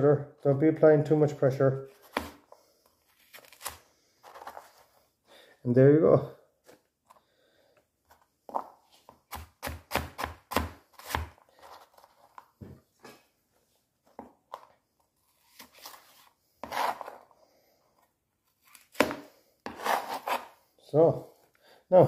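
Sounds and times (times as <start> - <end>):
knife chopping carrots: 9.1 - 11.4, 18.9 - 20.6
knife scraping board: 15.6 - 17.3, 18.7 - 20.6.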